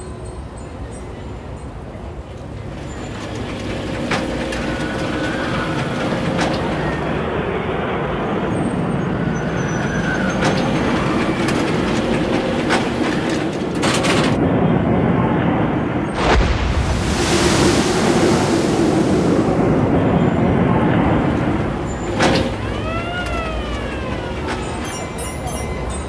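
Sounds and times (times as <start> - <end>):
roller coaster rumbling on track: 0.0 - 26.0
wheel squeals: 2.6 - 7.3, 8.3 - 14.4, 18.8 - 26.0.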